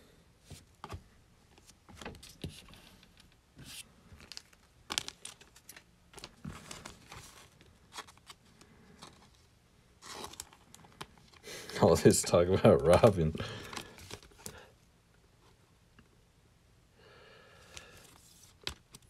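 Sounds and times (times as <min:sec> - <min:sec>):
foil wrapper crinkling: 0:04.2 - 0:09.3.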